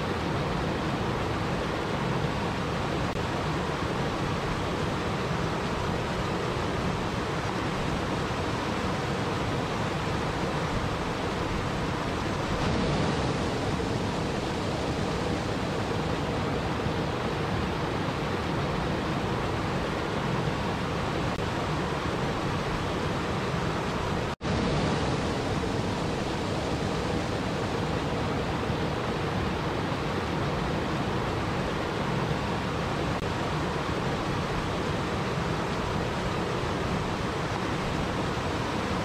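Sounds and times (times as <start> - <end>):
waterfall rushing: 0.0 - 39.0.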